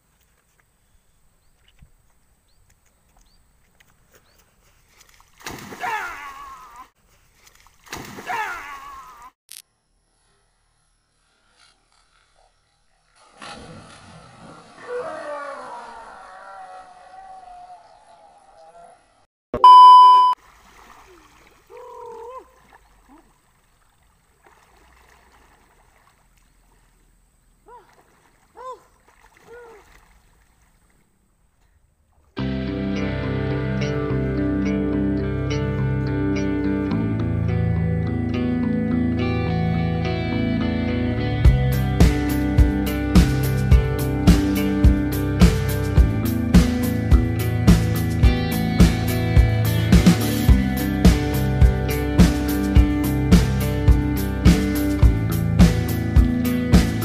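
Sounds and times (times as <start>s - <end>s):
faint river water: 0.0s - 39.0s
loud splash into water: 5.4s - 6.4s
person crying out: 5.8s - 6.9s, 8.2s - 9.4s, 21.7s - 22.6s
high electronic test tone beep: 19.6s - 20.4s.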